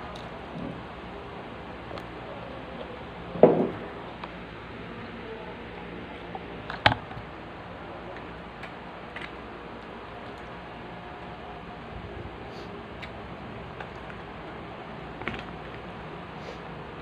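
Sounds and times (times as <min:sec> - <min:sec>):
steady hiss: 0:07.3 - 0:13.4, 0:15.8 - 0:17.0.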